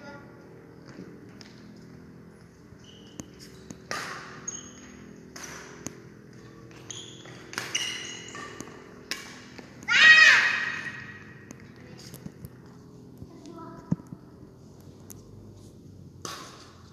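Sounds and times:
sneakers squeaking on court: 0.7 - 13.0
rackets hitting shuttlecock: 0.8 - 12.6, 16.2 - 16.9.

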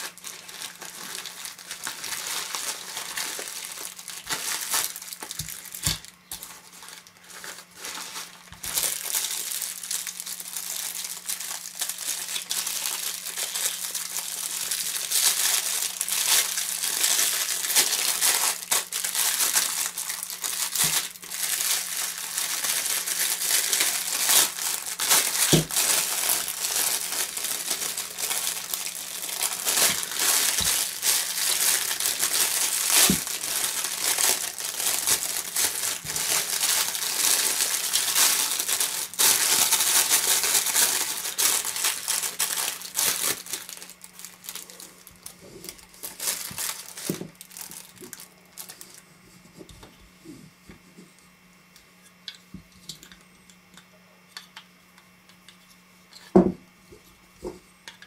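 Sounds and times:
plastic wrapping crinkling: 0.0 - 50.4.

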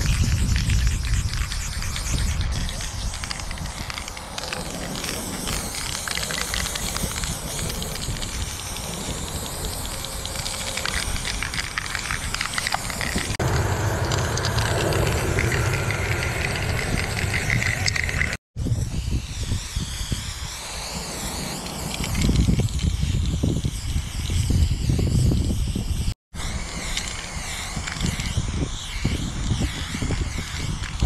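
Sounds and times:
spray-paint can hissing: 0.0 - 31.0
low rumble: 12.2 - 18.4.

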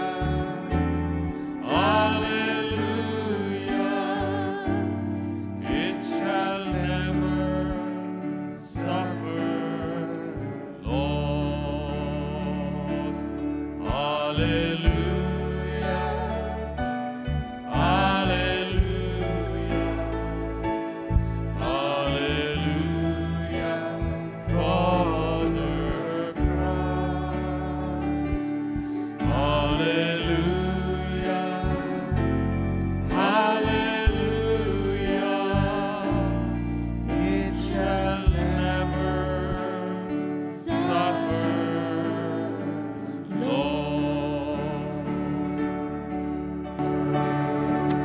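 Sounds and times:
voices singing: 0.0 - 45.6, 46.2 - 48.0
keyboard: 0.0 - 48.0
acoustic guitar: 45.0 - 48.0.

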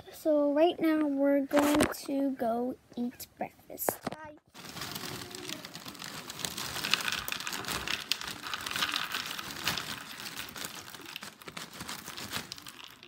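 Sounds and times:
plastic bag crinkling: 4.0 - 13.0
cereal pouring into plastic bowl: 4.6 - 13.0.

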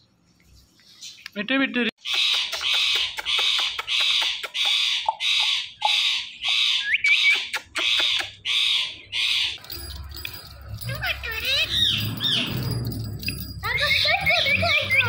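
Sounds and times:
parrot squawking: 2.0 - 9.6.

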